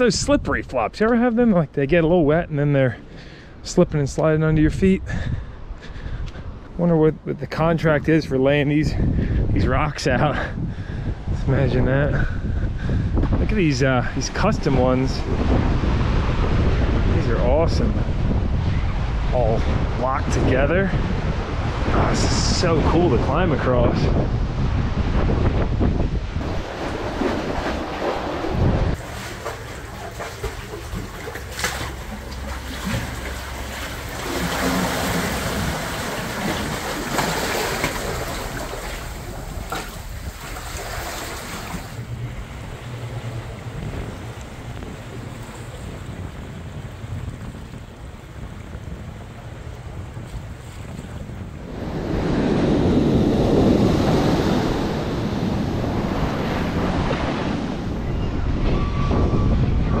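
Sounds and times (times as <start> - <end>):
wind buffeting microphone: 0.0 - 60.0
waves surging: 19.0 - 47.2, 50.5 - 59.1
bare feet splashing: 26.4 - 42.0
boat engine drone: 26.4 - 47.3
seawater splashing over rocks: 26.4 - 48.3.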